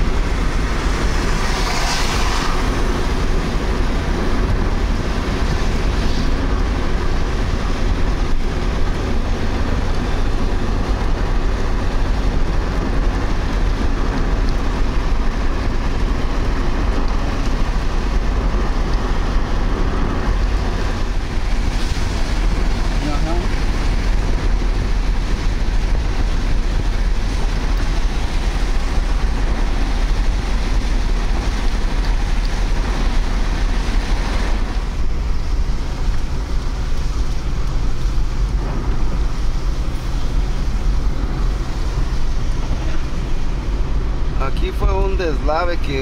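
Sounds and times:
passing truck swish: 0.0 - 4.4
car engine and wind noise: 0.0 - 46.0
tyres on wet pavement: 0.0 - 46.0.

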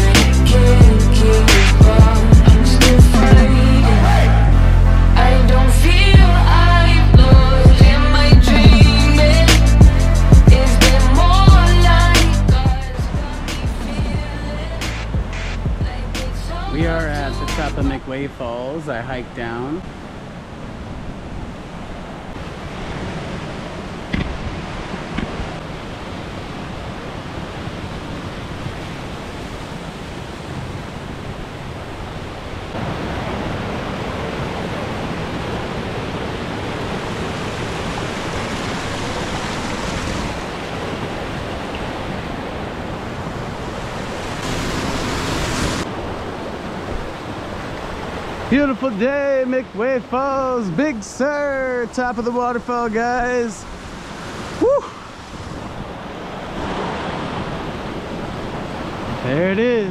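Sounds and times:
ocean surf: 0.0 - 59.9
falling water rushing: 5.9 - 59.9
wind buffeting microphone: 53.6 - 59.9.

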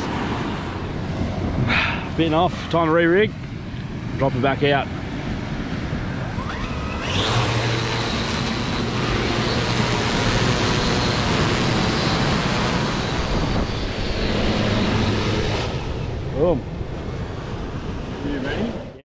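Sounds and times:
drone rotors buzzing: 5.8 - 18.8
short rising whine: 6.1 - 18.1.

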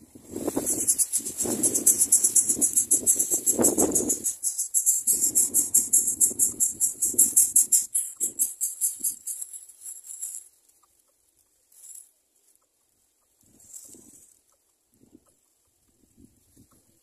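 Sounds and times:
high-pitched insect trill: 0.4 - 10.4.

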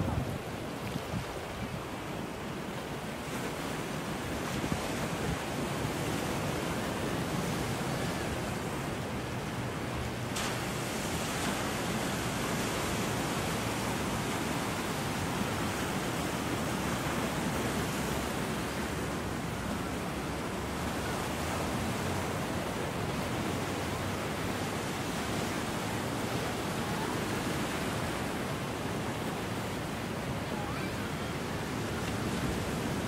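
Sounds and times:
wind on microphone: 0.0 - 9.2
ocean surf breaking on rocks: 0.0 - 33.0.

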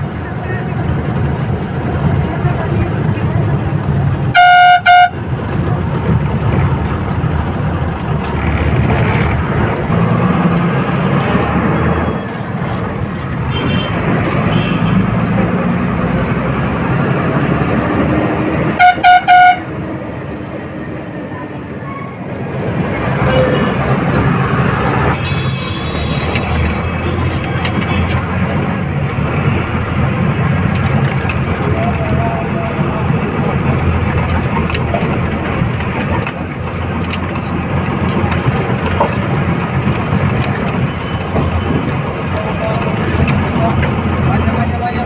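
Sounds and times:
bus diesel engine running: 0.0 - 45.0
vehicle horn blasts: 4.3 - 5.2, 13.5 - 15.0, 18.8 - 19.7.

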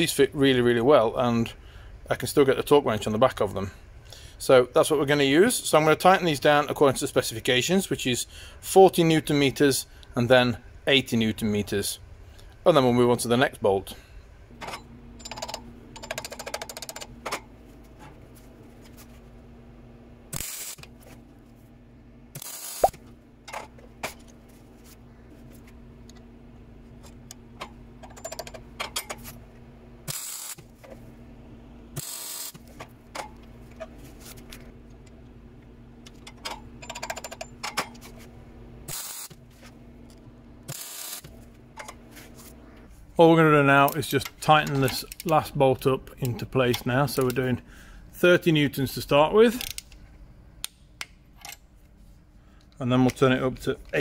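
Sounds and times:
steady low hum: 0.0 - 54.0
metal clicks and clatter of tools: 14.6 - 18.2, 27.0 - 29.3, 36.0 - 38.1, 43.8 - 45.4, 49.6 - 50.0, 51.4 - 51.7.

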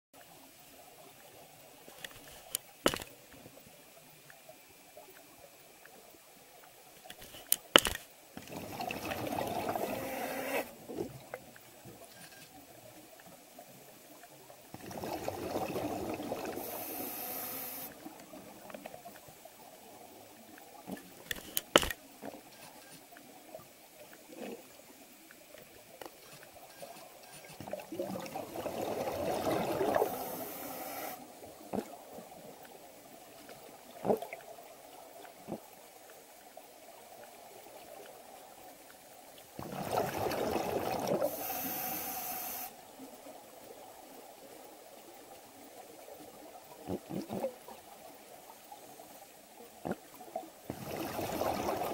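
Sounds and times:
sharp clicks: 7.1 - 8.1, 21.3 - 22.0
underwater bubbles burbling: 8.4 - 11.7, 14.7 - 16.8, 27.7 - 30.4, 39.6 - 41.4, 49.8 - 51.9.

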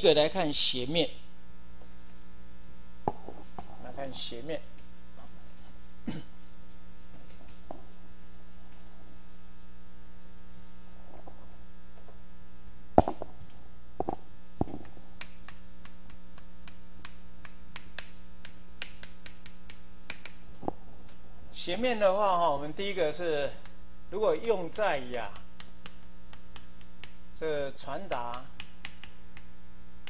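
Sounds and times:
electrical mains hum: 0.0 - 30.0
sharp knock: 13.0 - 13.3
chalk tapping on blackboard: 14.0 - 20.4, 25.1 - 27.2, 28.1 - 29.5.

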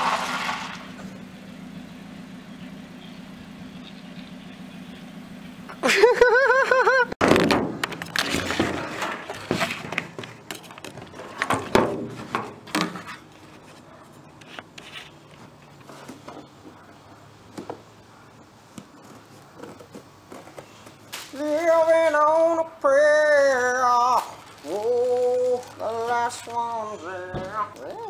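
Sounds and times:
box scraping and rustling: 7.9 - 16.6.

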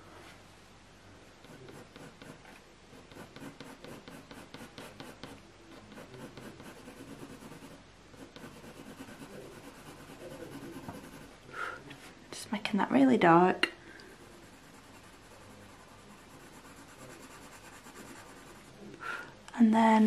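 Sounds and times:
pencil scratching on paper: 1.4 - 11.4, 14.2 - 18.8.

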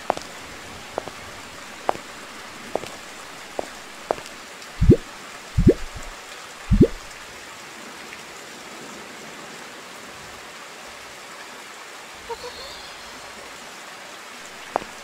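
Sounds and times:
heavy rain: 0.0 - 15.0
loud plops rising in pitch: 5.6 - 6.1, 6.7 - 7.0.

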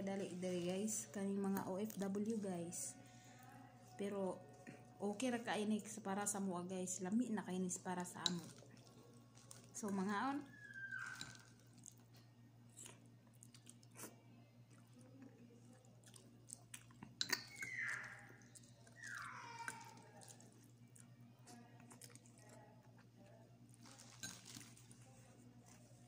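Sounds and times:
quiet chewing of noodles: 8.0 - 9.9, 10.5 - 26.0
spoon clicking against ceramic bowl: 17.2 - 17.7.

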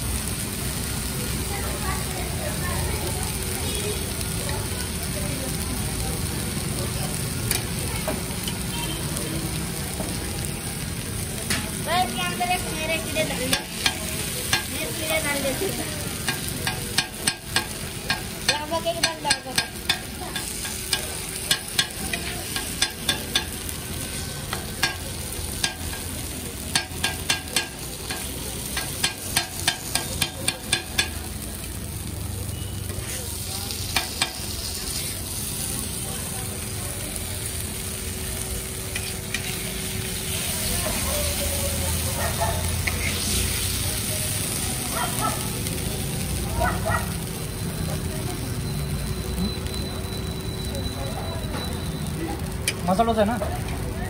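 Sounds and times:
dosa sizzling: 0.0 - 54.0
metal spatula tapping on griddle: 13.4 - 14.7, 16.2 - 23.6, 24.5 - 25.0, 25.6 - 26.1, 26.7 - 31.3, 33.9 - 34.4.

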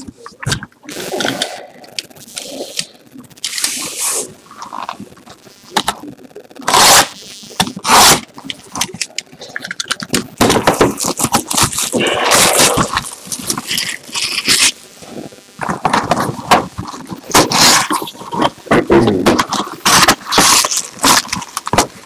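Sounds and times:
sharp plastic rips: 0.0 - 5.0, 5.7 - 14.8, 15.6 - 22.0
plastic shrink-wrap crinkling: 0.0 - 22.0.

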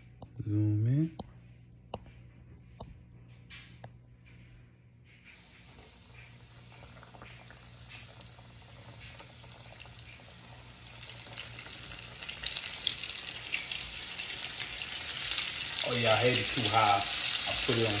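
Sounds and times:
oil popping: 5.3 - 14.3
fish sizzling in hot oil: 5.3 - 18.0.

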